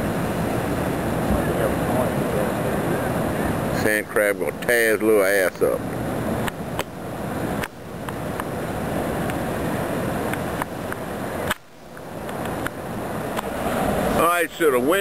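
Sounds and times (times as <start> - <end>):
wind on microphone: 0.0 - 3.8
ocean surf: 0.0 - 15.0.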